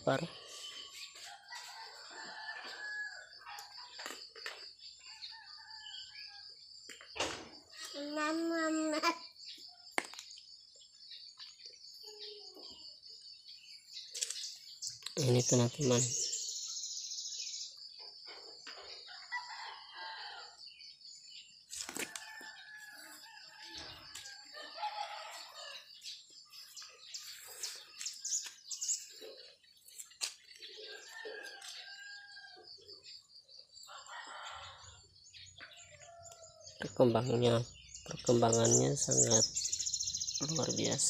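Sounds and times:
rooster crowing: 0:01.3 - 0:03.7, 0:22.1 - 0:25.9, 0:33.9 - 0:35.0.

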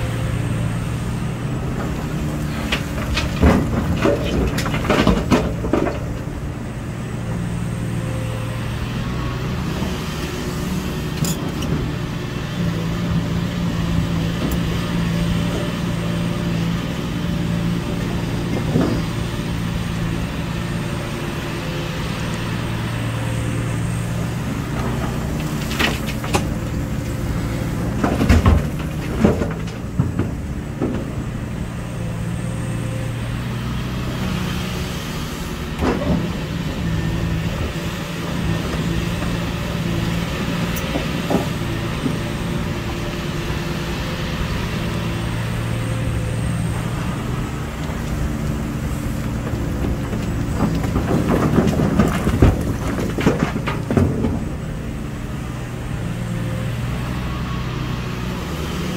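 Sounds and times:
excavator diesel engine running: 0:00.0 - 0:58.9
rock crashing into truck bed: 0:27.8 - 0:31.1, 0:49.5 - 0:54.6.

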